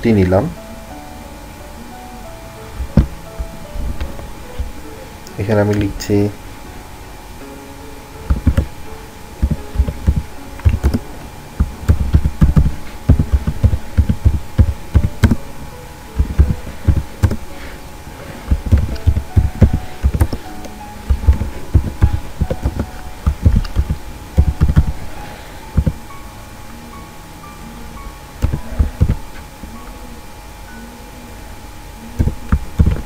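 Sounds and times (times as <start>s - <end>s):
faint background music: 0.0s - 33.0s
typing on computer keyboard: 9.4s - 11.0s, 11.8s - 15.4s, 21.1s - 24.9s, 28.4s - 29.2s.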